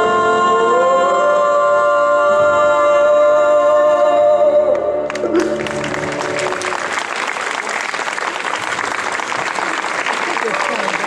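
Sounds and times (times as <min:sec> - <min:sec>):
audience applause: 0:05.1 - 0:11.0.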